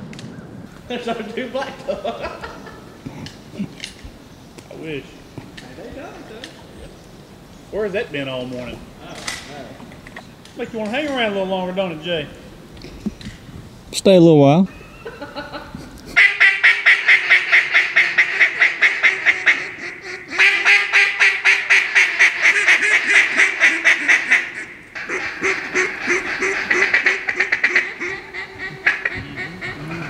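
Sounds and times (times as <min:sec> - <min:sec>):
duck call notes: 0:16.1 - 0:30.0.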